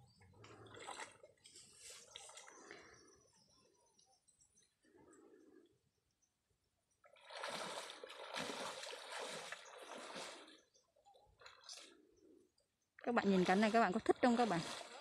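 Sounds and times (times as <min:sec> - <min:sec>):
water splashing from wading: 0:07.1 - 0:10.8, 0:13.1 - 0:15.0.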